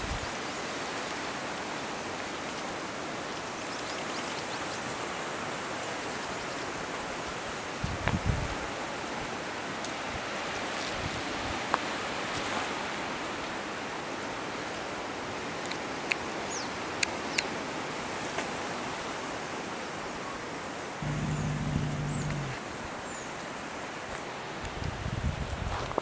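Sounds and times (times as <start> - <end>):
low hum: 21.0 - 22.6
outdoor hiss: 21.0 - 22.6.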